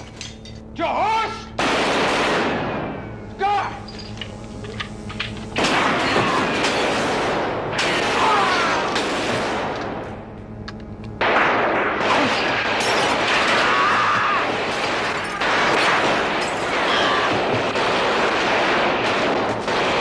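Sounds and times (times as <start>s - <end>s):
automatic gunfire: 1.6s - 3.0s, 5.6s - 9.9s, 11.2s - 20.0s.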